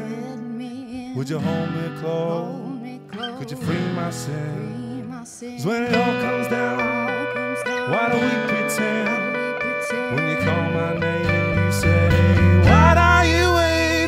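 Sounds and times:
electric guitar: 0:00.0 - 0:14.0
strummed acoustic guitar: 0:00.0 - 0:14.0
electric bass: 0:10.5 - 0:14.0.

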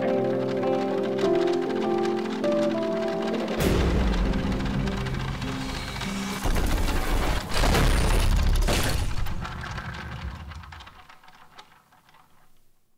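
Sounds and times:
heavy cinematic hits: 0:03.6 - 0:10.5.

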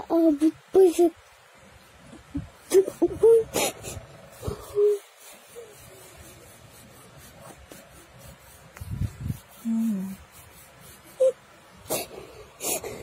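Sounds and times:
hummed voice: 0:09.6 - 0:10.3.

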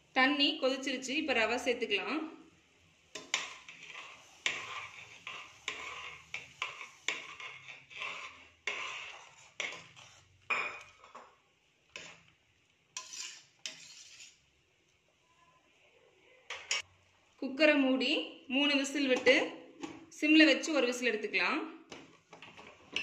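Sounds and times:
ladle scraping steel pot: 0:03.1 - 0:11.3, 0:11.9 - 0:12.3, 0:13.0 - 0:14.4.

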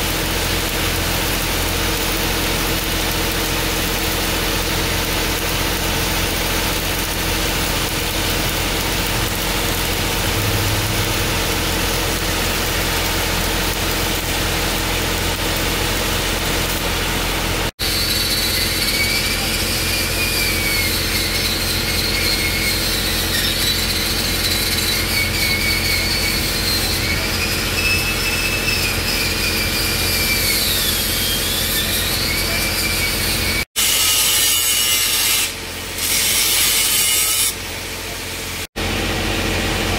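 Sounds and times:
arc welding crackling and hissing: 0:00.0 - 0:39.9
angle grinder whining: 0:01.6 - 0:37.6
engine hum: 0:07.0 - 0:17.7.

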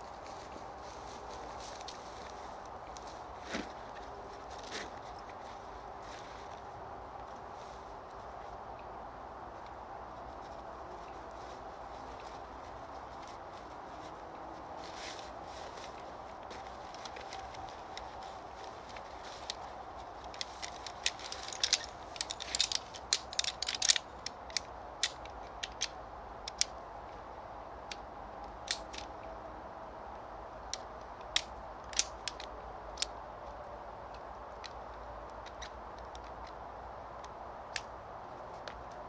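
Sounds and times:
metal chair poles clicking: 0:18.8 - 0:25.9.

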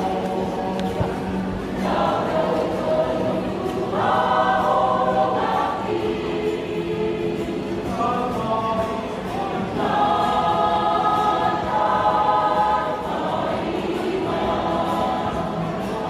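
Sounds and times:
mixed choir singing: 0:00.0 - 0:16.0.

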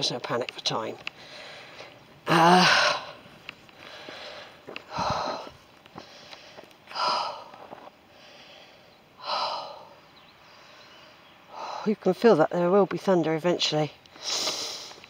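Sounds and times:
man breathing hard: 0:01.2 - 0:11.9.

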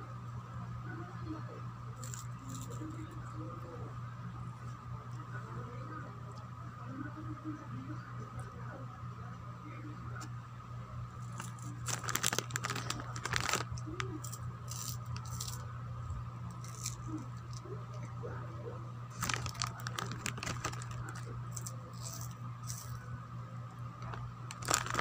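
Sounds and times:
steady low hum: 0:00.0 - 0:25.0
plastic snack packet crinkling: 0:02.0 - 0:02.9, 0:11.2 - 0:15.6, 0:16.5 - 0:17.6, 0:19.1 - 0:23.0, 0:24.0 - 0:25.0.

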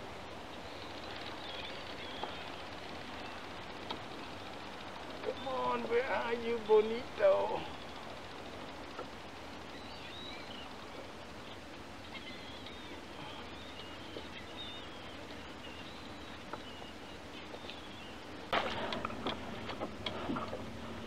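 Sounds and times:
bird chirps: 0:09.6 - 0:18.2.

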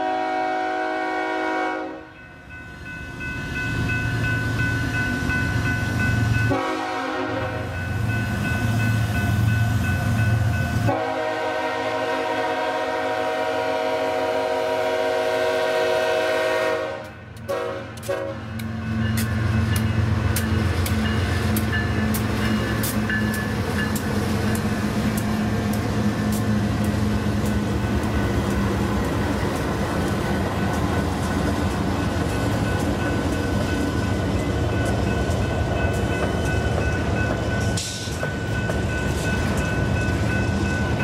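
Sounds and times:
locomotive air horn blasts: 0:00.0 - 0:02.1, 0:06.5 - 0:07.7, 0:10.9 - 0:18.5
locomotive engine drone: 0:17.0 - 0:41.0.

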